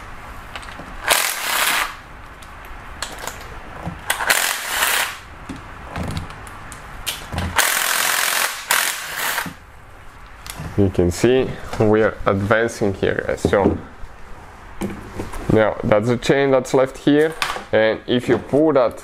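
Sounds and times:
power ratchet spinning: 0:01.0 - 0:02.0, 0:04.1 - 0:05.2, 0:07.5 - 0:09.6.

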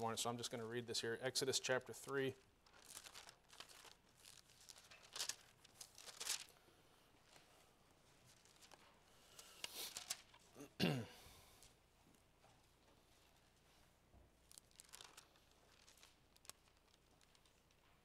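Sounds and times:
pages turning: 0:02.0 - 0:06.6, 0:07.2 - 0:10.6, 0:14.4 - 0:18.0.

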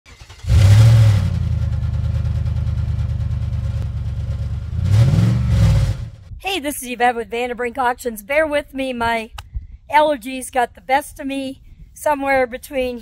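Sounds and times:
car engine revving: 0:00.1 - 0:06.3.

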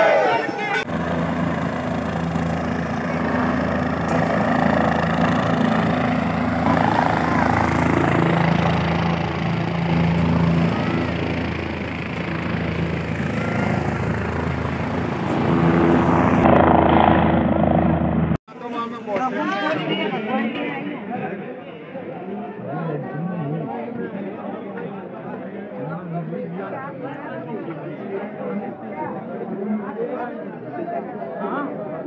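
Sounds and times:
crowd chatter: 0:00.0 - 0:16.4, 0:18.5 - 0:32.0
helicopter drone: 0:00.1 - 0:18.4.

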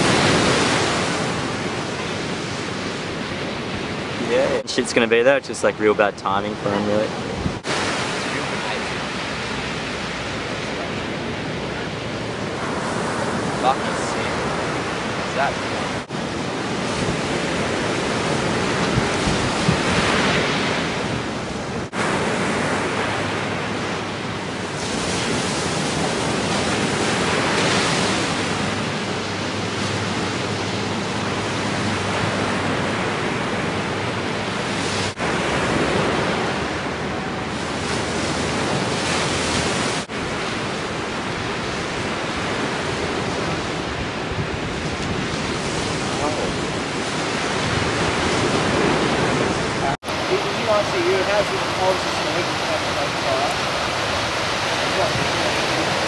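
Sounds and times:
ocean waves breaking: 0:00.0 - 0:56.0.

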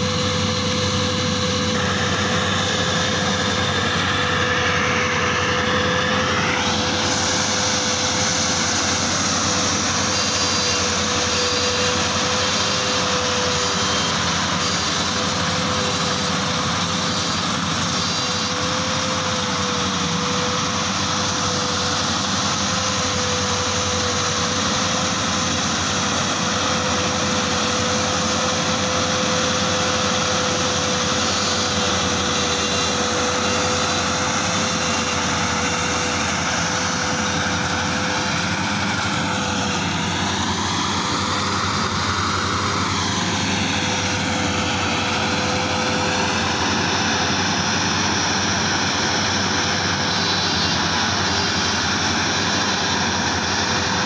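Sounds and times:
combine harvester running: 0:00.0 - 0:54.0.

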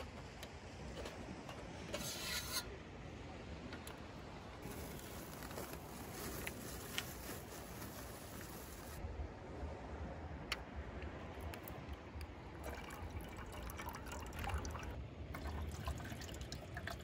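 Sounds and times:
rough scraping: 0:00.9 - 0:02.8, 0:04.6 - 0:09.0.

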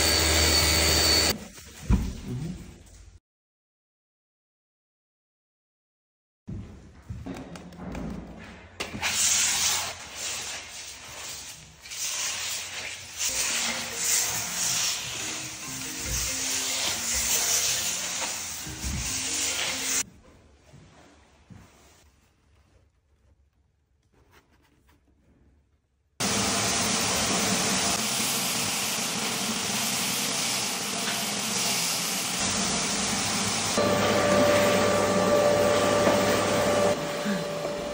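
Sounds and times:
floor sander running: 0:00.0 - 0:01.4, 0:26.2 - 0:37.9.

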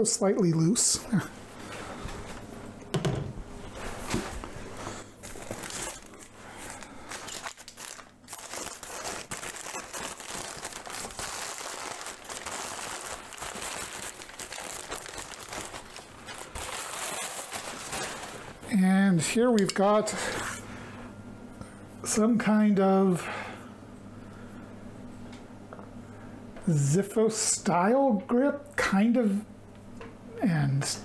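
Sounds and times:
packing paper crinkling: 0:05.2 - 0:18.7.

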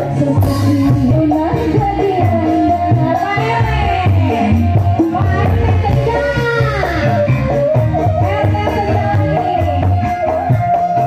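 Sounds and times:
drum and bass beat: 0:00.0 - 0:11.0
live band through loudspeakers: 0:00.0 - 0:11.0
person singing: 0:00.0 - 0:11.0.

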